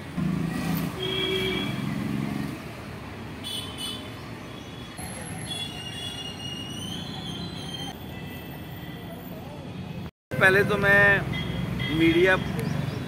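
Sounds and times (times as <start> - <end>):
vehicle engine: 0.0 - 3.2
traffic hum: 0.0 - 13.0.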